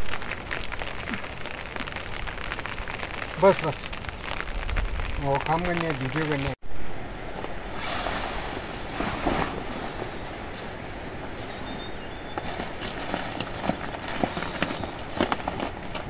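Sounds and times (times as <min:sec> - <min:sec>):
tarps crackling: 0:00.0 - 0:06.6, 0:07.2 - 0:16.0
steady outdoor hiss: 0:00.0 - 0:16.0
tarpaulin rustling and swishing: 0:07.2 - 0:16.0.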